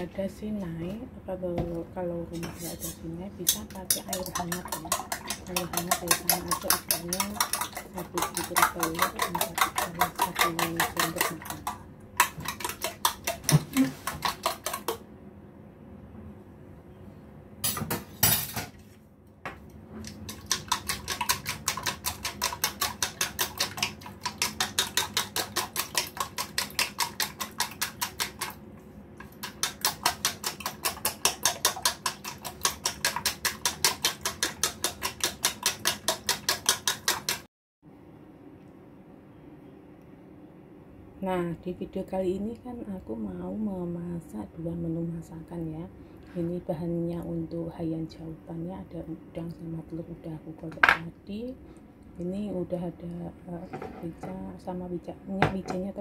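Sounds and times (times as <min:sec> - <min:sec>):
whisk clicking against metal bowl: 0:03.4 - 0:15.0, 0:20.3 - 0:28.6, 0:29.2 - 0:37.5.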